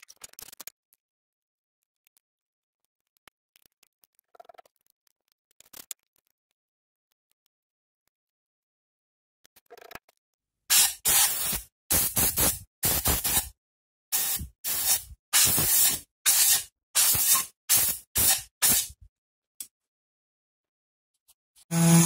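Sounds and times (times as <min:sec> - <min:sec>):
compressed air blasts: 0:10.7 - 0:13.5, 0:14.1 - 0:19.0.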